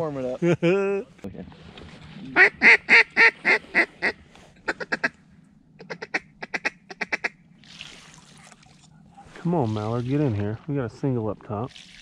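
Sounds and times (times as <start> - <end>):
duck call clucking chatter: 2.4 - 5.2, 5.8 - 7.4
duck call quacks: 2.4 - 5.2, 5.8 - 7.4.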